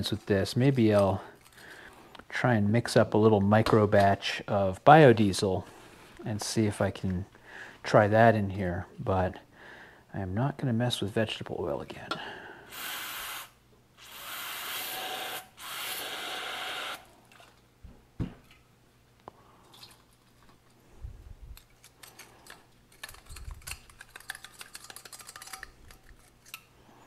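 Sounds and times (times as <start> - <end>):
metal part clicking and scraping: 21.6 - 26.7.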